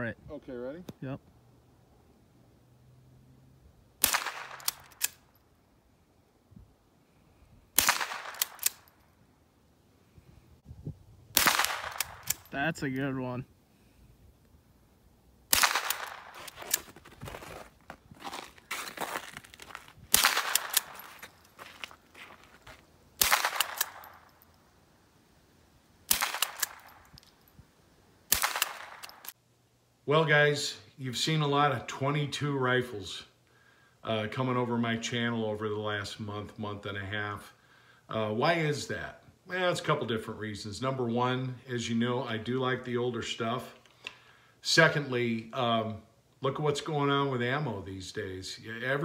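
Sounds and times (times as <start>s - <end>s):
rifle shot: 4.0s - 5.2s, 7.8s - 9.0s, 11.3s - 12.5s, 15.5s - 16.8s, 20.1s - 21.1s, 23.2s - 24.3s, 26.1s - 27.2s, 28.3s - 29.4s
rattle of rifle action clicks: 4.5s - 5.4s, 8.3s - 9.0s, 11.8s - 12.5s, 28.5s - 29.4s.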